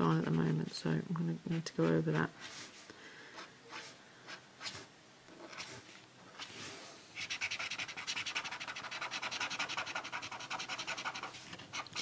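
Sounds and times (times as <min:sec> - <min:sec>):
marker scratching on paper: 0:07.2 - 0:12.0.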